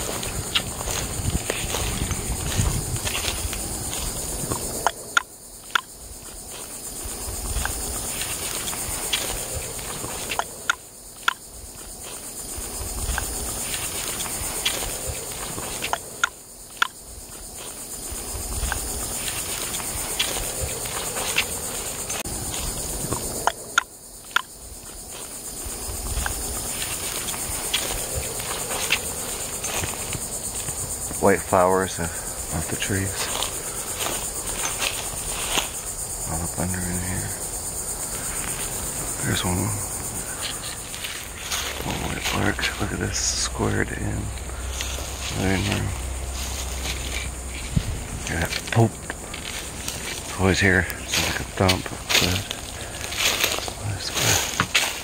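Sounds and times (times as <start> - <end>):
footsteps through grass: 0.0 - 55.0
insects droning: 0.0 - 55.0
sharp clicks: 4.4 - 5.9, 8.6 - 11.4, 23.0 - 24.5.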